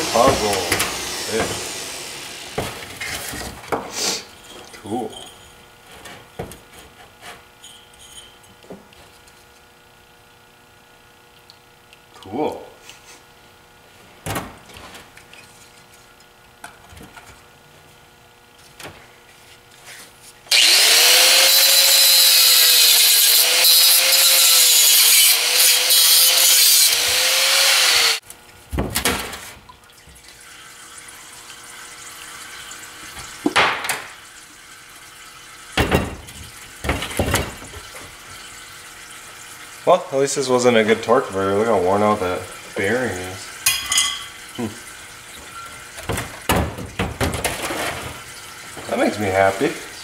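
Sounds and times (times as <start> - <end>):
angle grinder cutting metal: 0.0 - 2.6, 20.5 - 28.2.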